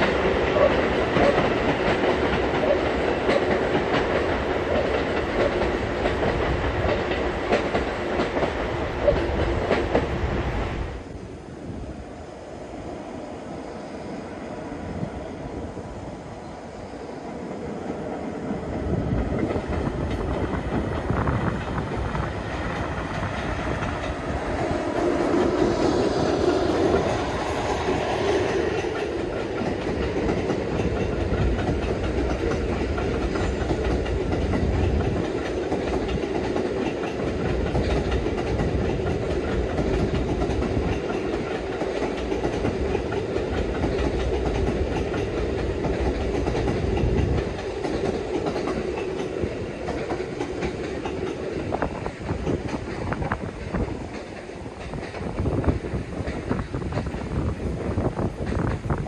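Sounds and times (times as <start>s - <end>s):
railcar wheels clacking on rails: 0.0s - 11.0s, 17.7s - 59.0s
diesel locomotive engine: 0.0s - 59.0s.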